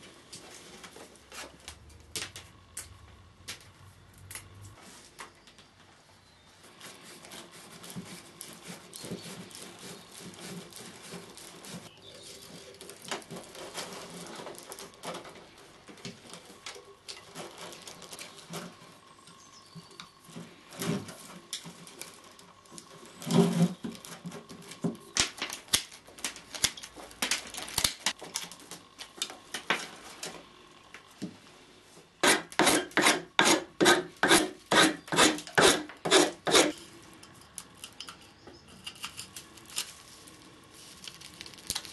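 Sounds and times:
twigs rustling and scraping: 6.6s - 31.0s, 34.2s - 41.9s
blade shaving wood: 6.7s - 15.6s, 32.2s - 36.8s.

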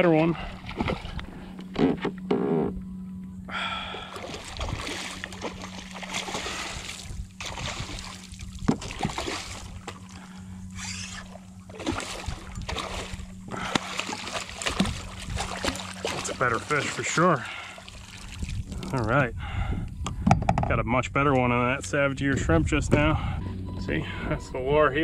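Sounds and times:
steady low hum: 0.0s - 25.0s
fish thrashing and splashing water: 0.4s - 1.3s, 3.9s - 19.0s.

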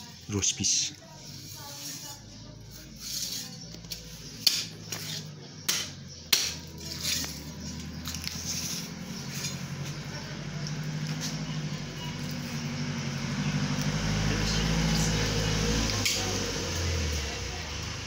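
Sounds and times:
knife chopping chicken on wood: 5.6s - 6.7s.

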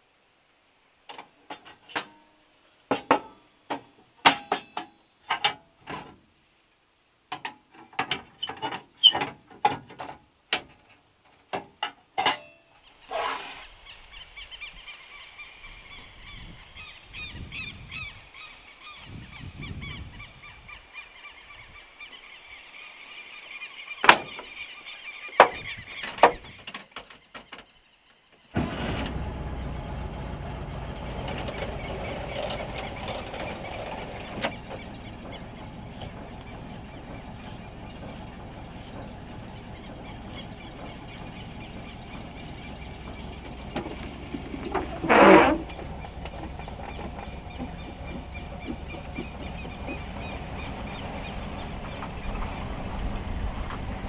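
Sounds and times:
heavy rain on metal roof: 28.6s - 42.4s, 43.0s - 54.0s
outdoor hum with high whine: 28.6s - 54.0s.

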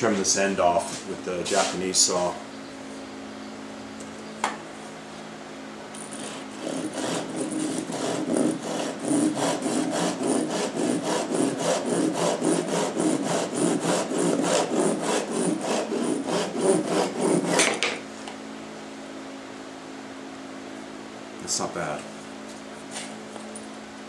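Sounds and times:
hand saw cutting wood: 6.0s - 18.0s.

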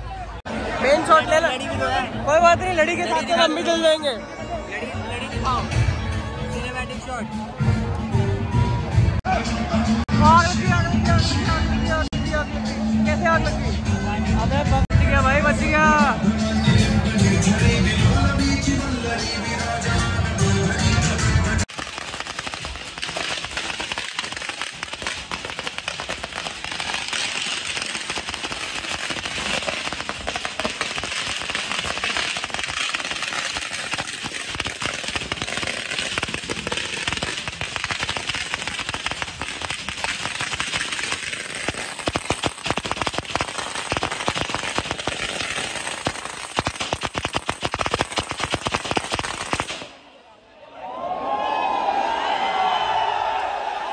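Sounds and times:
firecrackers crackling: 21.6s - 50.1s.

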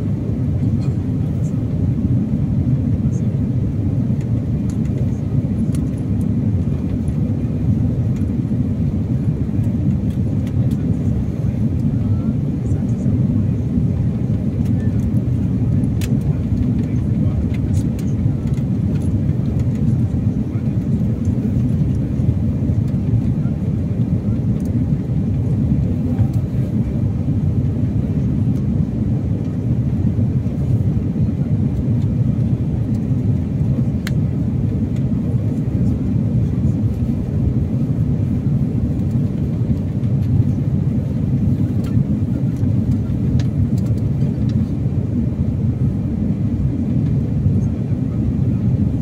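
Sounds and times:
airliner cabin rumble: 0.0s - 49.0s.

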